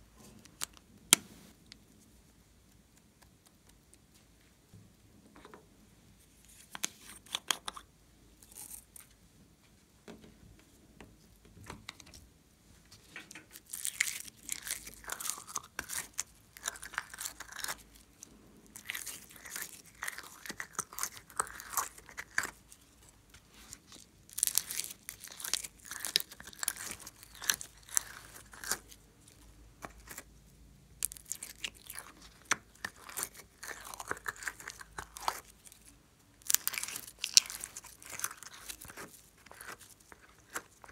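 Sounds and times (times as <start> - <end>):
sticky crackling and popping: 23.6 - 30.2, 31.0 - 40.9.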